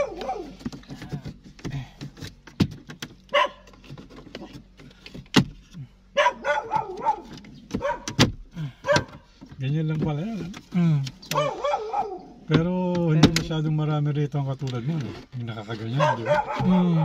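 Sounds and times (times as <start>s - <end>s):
dog barking: 0.0s - 0.6s, 3.3s - 3.7s, 6.2s - 8.2s, 8.8s - 9.2s, 11.4s - 12.4s, 15.9s - 17.0s.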